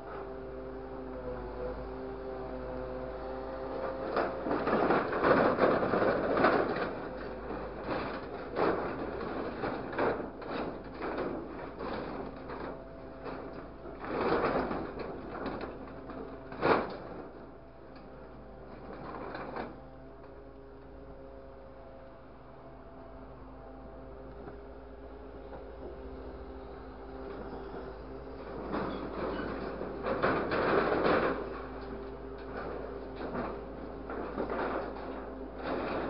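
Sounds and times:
truck engine humming: 0.0 - 36.0
scrap metal clattering and crashing: 3.9 - 19.8, 27.2 - 36.0.

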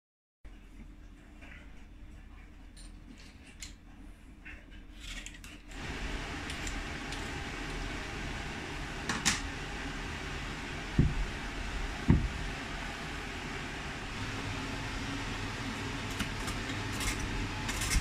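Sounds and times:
peeler scraping potato skin: 4.9 - 5.8, 16.0 - 18.0.

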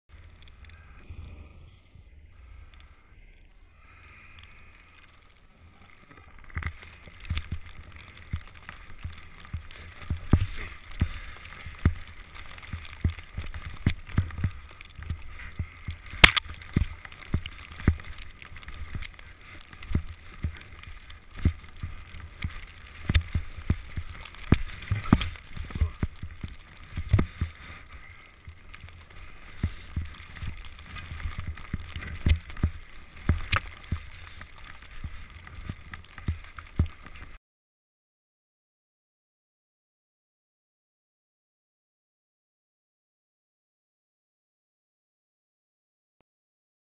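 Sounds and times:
skis hissing through powder snow: 0.2 - 37.3.

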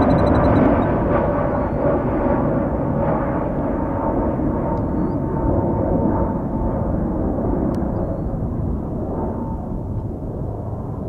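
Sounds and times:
faint high whine: 0.0 - 1.9
jet engines rumbling: 0.0 - 11.0.

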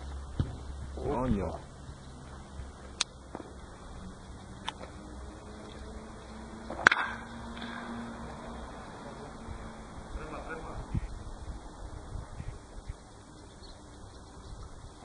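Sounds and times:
baseball bat hitting ball: 6.7 - 7.9.

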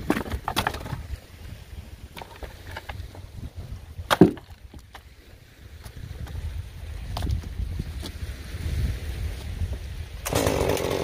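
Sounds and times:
branch knocking and scraping on rocks: 0.0 - 1.0, 4.1 - 5.0
wind noise on microphone: 0.0 - 11.0
branch thud on stones: 4.1 - 4.6.

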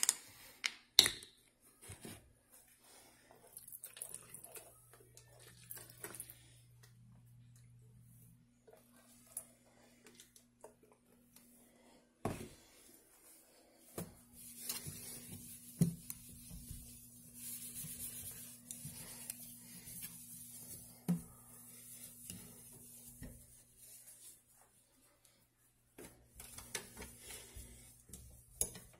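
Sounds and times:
soft rubbing hiss on sink: 12.6 - 25.7.

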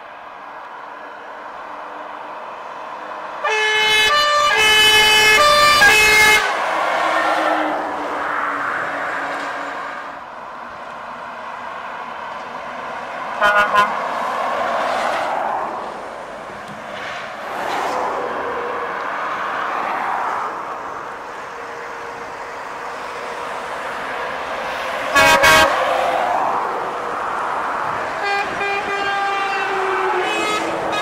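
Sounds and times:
heavy trucks passing: 0.0 - 31.0
truck horn blasts: 3.4 - 6.6, 13.4 - 14.0, 25.1 - 25.8, 28.2 - 31.0.

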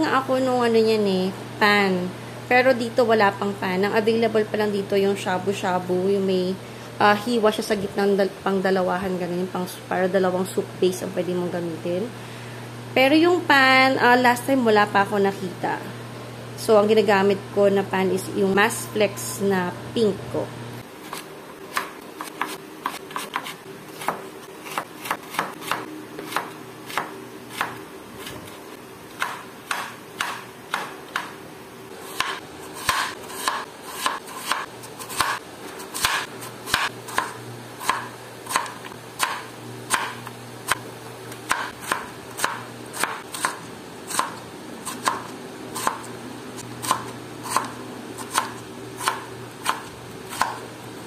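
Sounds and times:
knife chopping on wooden board: 21.1 - 28.5, 29.2 - 31.4, 32.1 - 40.8, 41.5 - 46.0, 46.8 - 50.6.

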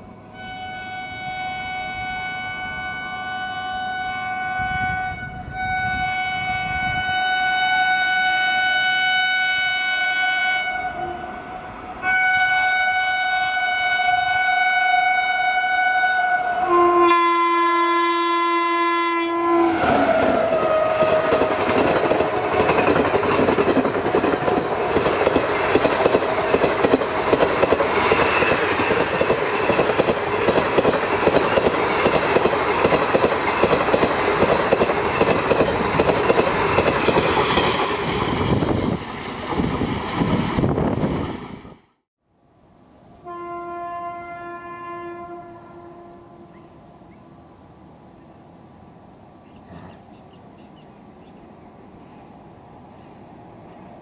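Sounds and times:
train horn blasts: 0.3 - 22.5, 43.2 - 47.0
train coaches clattering past: 19.6 - 41.6.

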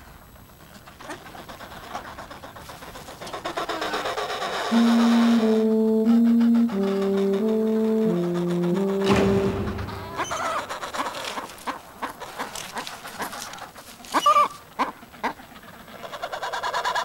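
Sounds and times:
penguin calls: 10.0 - 10.6.

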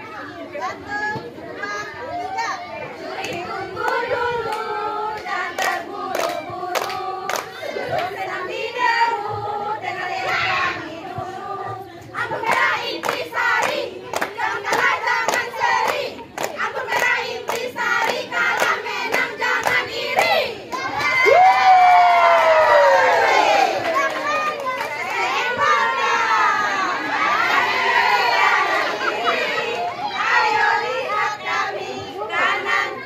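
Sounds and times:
women chanting in unison: 1.7 - 21.3, 24.8 - 33.0
rhythmic hand claps: 3.2 - 9.2, 12.2 - 21.4.

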